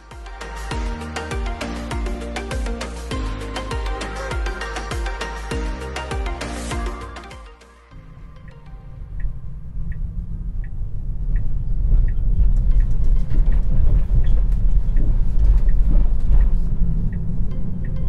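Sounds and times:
road and tyre rumble: 8.0 - 18.0
turn signal ticking: 8.0 - 18.0.

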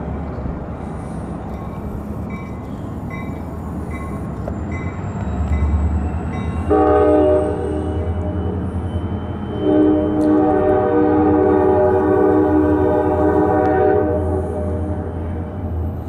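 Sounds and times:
locomotive air horn blast: 6.6 - 8.4, 9.6 - 15.2.

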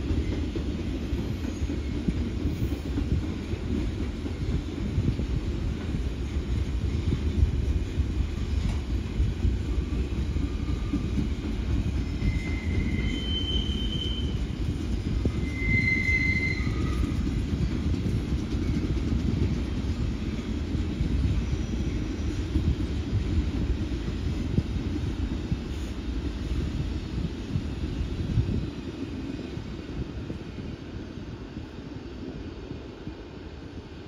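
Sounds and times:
train wheels rumbling on track: 0.0 - 34.0
high-pitched wheel squeals: 12.0 - 14.5, 15.2 - 17.2.

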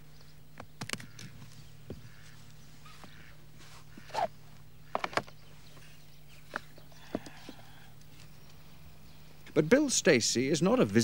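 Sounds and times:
faint steady hum: 0.0 - 11.0
camera case clicks and knocks: 5.0 - 5.4.

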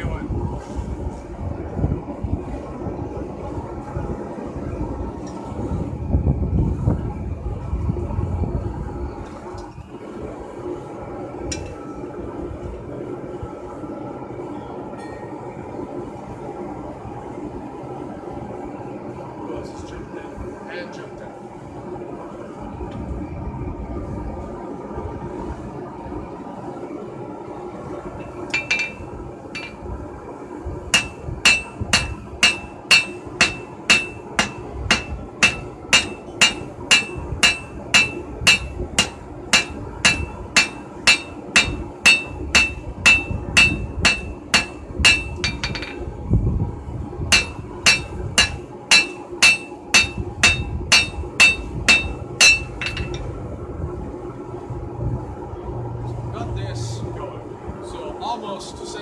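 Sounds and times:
hammer striking steel on anvil: 28.2 - 29.8, 30.9 - 46.1, 47.3 - 53.3.

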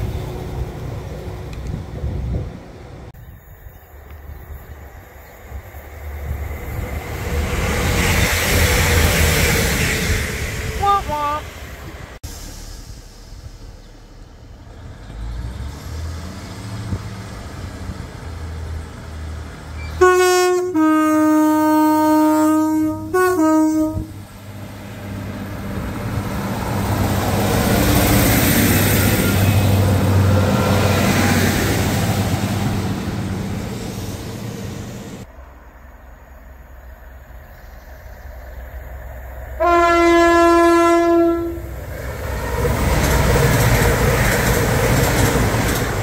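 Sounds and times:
train passing at speed: 0.0 - 46.0
train two-tone horn: 10.8 - 11.5, 19.8 - 24.2, 39.6 - 41.8.

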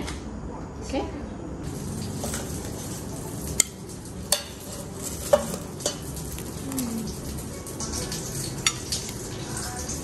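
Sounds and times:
utensils clinking on plate: 3.5 - 10.0.

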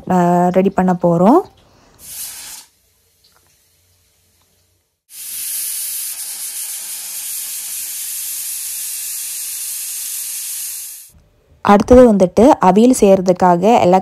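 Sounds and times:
pressure cooker steam hissing: 2.0 - 2.7, 5.1 - 11.1.

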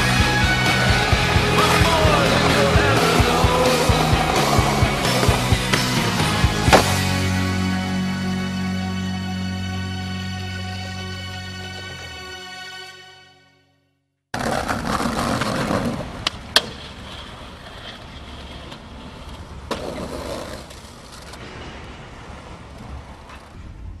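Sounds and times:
skateboard wheels rolling on concrete: 0.0 - 9.5, 14.3 - 24.0
skateboard clacks: 0.2 - 7.0, 14.4 - 21.5
skateboard trucks scraping ledge: 0.6 - 7.2, 14.4 - 23.5
skateboard landing knock: 6.7 - 7.1.

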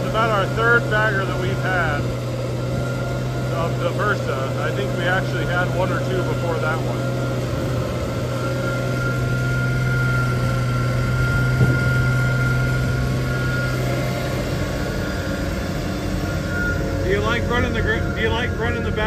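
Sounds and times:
low machine drone: 0.0 - 19.0
thin whine: 0.0 - 19.0
single knock: 11.6 - 12.2.

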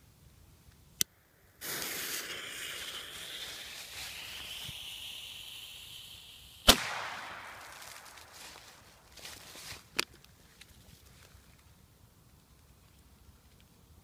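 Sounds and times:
firecracker bang: 1.6 - 9.0
firecracker fuse hissing: 1.6 - 9.5.

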